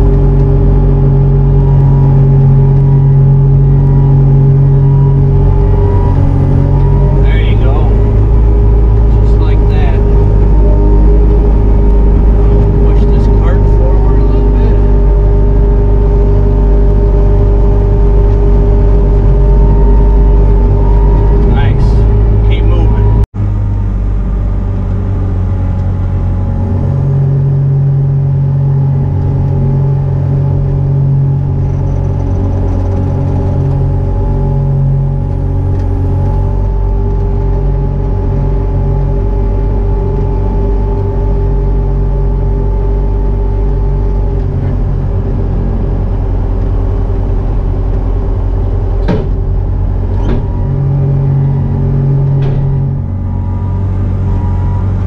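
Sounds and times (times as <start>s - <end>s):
diesel engine running: 0.0s - 55.0s
sharp knocks: 49.0s - 50.8s, 52.2s - 53.0s.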